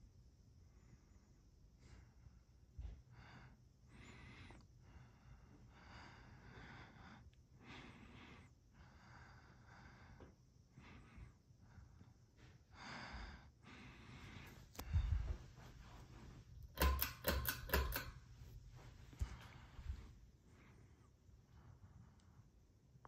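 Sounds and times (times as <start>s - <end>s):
ceiling fan humming: 0.0s - 23.0s
soft breath sounds: 0.4s - 16.9s, 17.7s - 22.9s.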